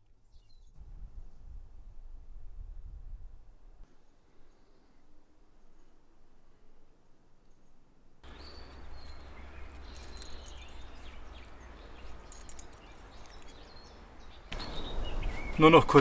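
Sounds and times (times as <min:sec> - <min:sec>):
birds chirping and calling: 0:08.3 - 0:16.0.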